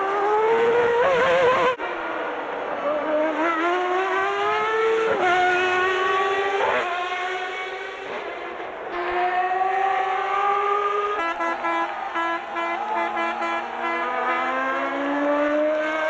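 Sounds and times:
racing car engines accelerating: 0:00.0 - 0:16.0.

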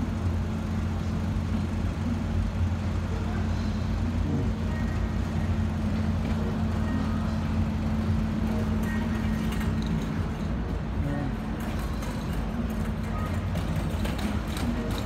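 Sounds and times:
city street traffic: 0:00.0 - 0:15.0
vehicle engine humming: 0:00.0 - 0:15.0.

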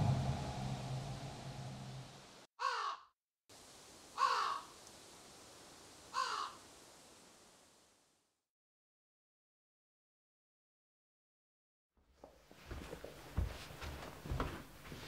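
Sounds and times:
music chord: 0:00.0 - 0:02.3
crow cawing: 0:02.6 - 0:03.1, 0:04.2 - 0:04.7, 0:06.1 - 0:06.6.

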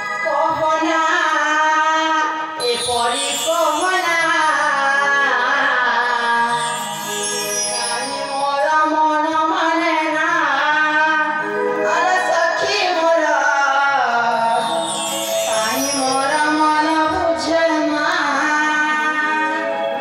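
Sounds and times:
person singing: 0:00.0 - 0:20.0
sustained instrumental tones: 0:02.3 - 0:09.5, 0:11.3 - 0:20.0.

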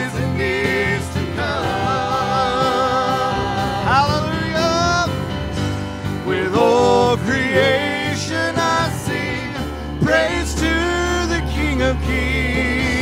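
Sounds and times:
voices singing long notes: 0:00.0 - 0:05.2, 0:06.1 - 0:13.0
worship band playing: 0:00.0 - 0:13.0.

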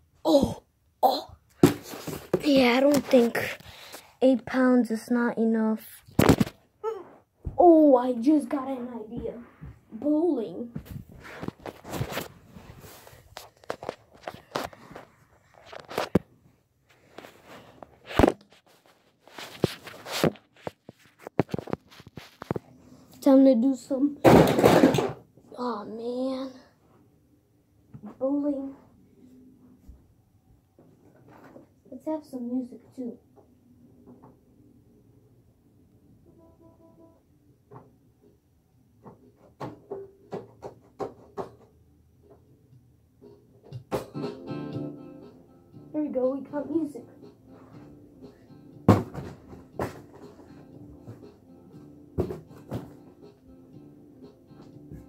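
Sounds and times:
footsteps: 0:01.6 - 0:04.1, 0:08.8 - 0:16.2, 0:16.8 - 0:22.7
camera handling rustles and knocks: 0:18.1 - 0:22.6
music playing: 0:44.0 - 0:48.9, 0:49.5 - 0:55.0.

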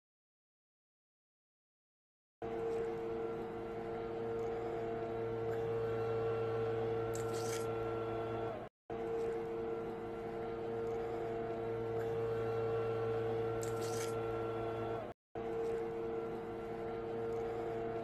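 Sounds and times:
electrical hum: 0:02.4 - 0:18.0.

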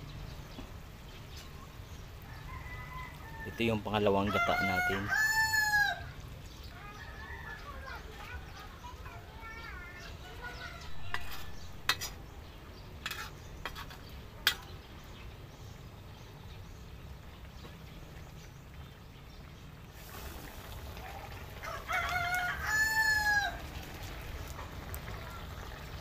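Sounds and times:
rooster crowing: 0:02.2 - 0:06.1, 0:21.6 - 0:23.7.

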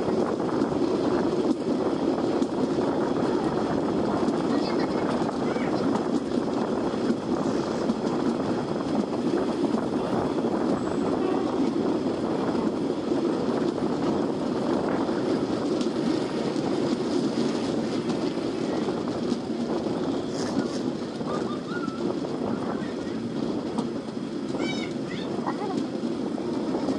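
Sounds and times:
rushing air: 0:00.0 - 0:24.5
train wheels rumbling on rail: 0:00.0 - 0:26.9.

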